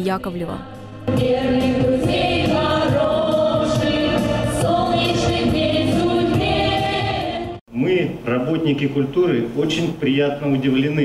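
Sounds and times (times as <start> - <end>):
women singing in harmony: 0.0 - 7.6.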